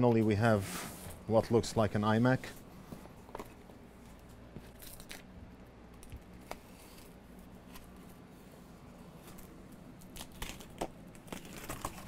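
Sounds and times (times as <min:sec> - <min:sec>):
knife slitting packing tape: 0:10.0 - 0:12.0.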